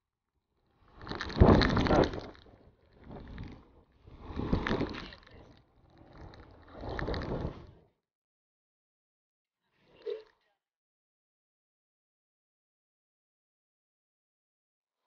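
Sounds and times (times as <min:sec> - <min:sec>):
wind buffeting microphone: 0:01.1 - 0:02.4.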